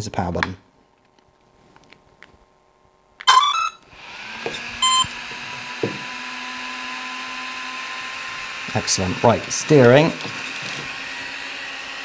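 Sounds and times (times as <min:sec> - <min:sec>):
cooling fans whirring: 0:03.2 - 0:12.0
motor start-up beeps: 0:03.3 - 0:03.8, 0:04.8 - 0:05.2.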